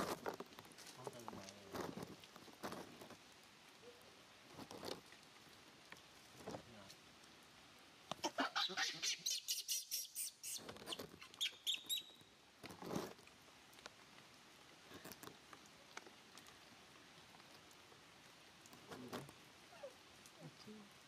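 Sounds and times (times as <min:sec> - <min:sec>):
baby monkey squeaking: 0:08.3 - 0:12.2.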